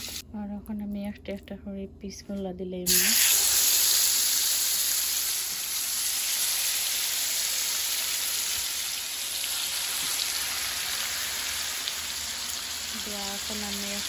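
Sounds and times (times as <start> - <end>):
meat sizzling in oil: 2.9 - 14.0.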